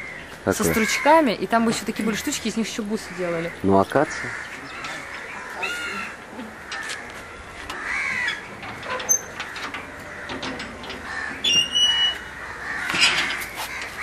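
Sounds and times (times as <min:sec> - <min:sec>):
crows cawing: 0:00.0 - 0:01.4, 0:02.8 - 0:08.6, 0:09.4 - 0:14.0
short high squeak: 0:11.5 - 0:12.3.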